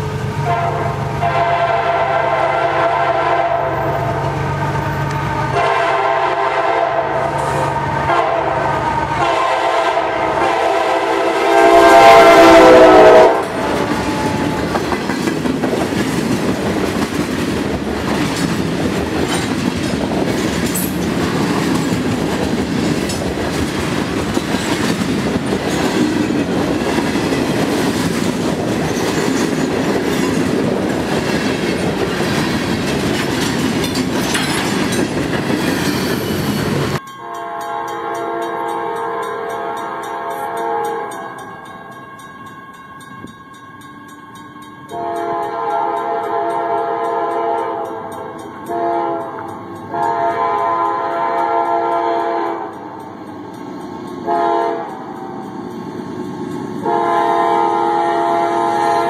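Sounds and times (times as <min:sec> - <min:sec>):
locomotive air horn blast: 0:00.0 - 0:14.7, 0:37.2 - 0:41.3, 0:44.9 - 0:52.7, 0:54.2 - 0:55.0, 0:56.8 - 0:59.0
train cars rumbling: 0:00.0 - 0:59.0
wheels clacking over rail joints: 0:13.4 - 0:37.0.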